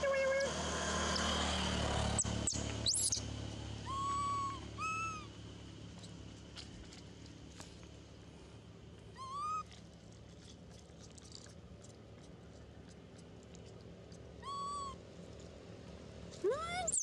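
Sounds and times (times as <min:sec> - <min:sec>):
macaque coo calls: 0:03.8 - 0:05.3, 0:09.2 - 0:09.6, 0:14.4 - 0:15.0.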